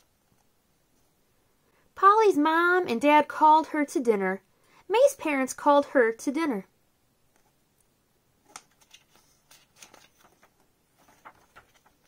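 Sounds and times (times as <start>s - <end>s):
paper page turning: 8.4s - 12.0s.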